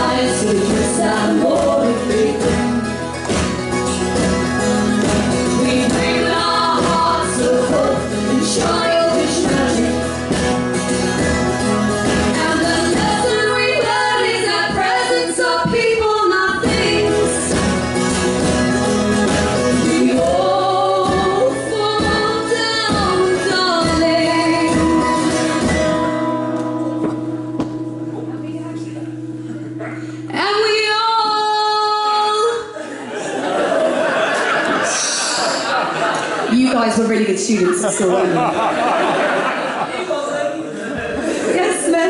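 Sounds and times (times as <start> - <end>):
women singing in harmony: 0.0 - 3.0, 5.4 - 10.2, 12.3 - 17.5, 19.7 - 26.0
strummed stringed instrument: 0.0 - 30.9
acoustic guitar: 0.0 - 42.0.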